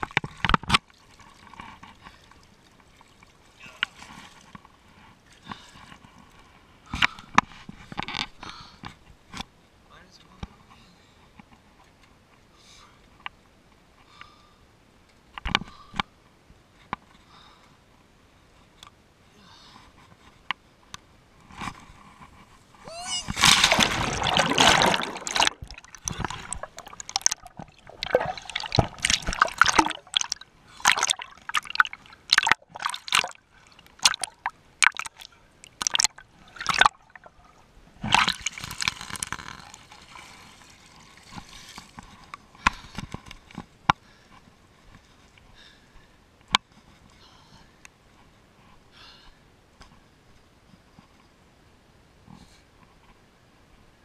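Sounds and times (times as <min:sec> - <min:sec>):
water rushing: 0:22.9 - 0:41.7
short sharp splashes and drips: 0:23.4 - 0:42.0.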